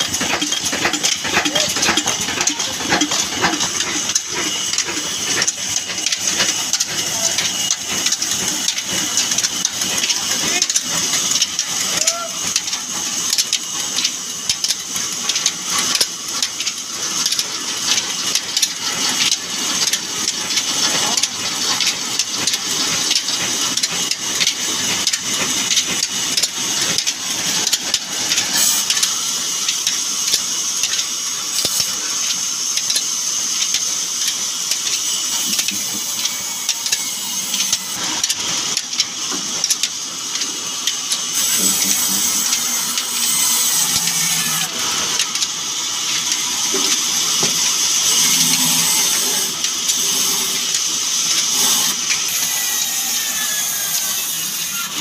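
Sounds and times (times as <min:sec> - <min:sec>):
diesel engine running: 0:00.0 - 0:11.0.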